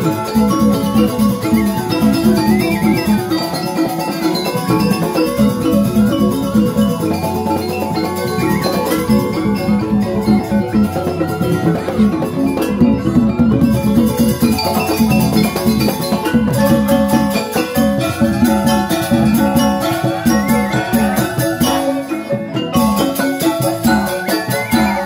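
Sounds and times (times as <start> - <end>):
hand drums: 0.0 - 25.0
metallophone notes ringing: 0.0 - 25.0.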